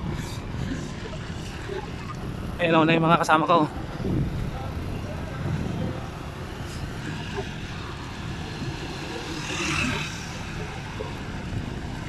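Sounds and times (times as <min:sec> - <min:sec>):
wind rushing over microphone: 0:00.0 - 0:12.0
bicycle tyres on concrete: 0:03.9 - 0:12.0.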